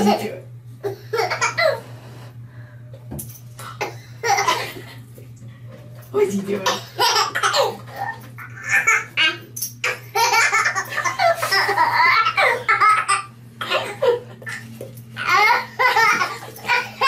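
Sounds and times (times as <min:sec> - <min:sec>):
steady low hum: 0:00.0 - 0:17.0
baby laughing: 0:07.0 - 0:14.6, 0:15.2 - 0:17.0.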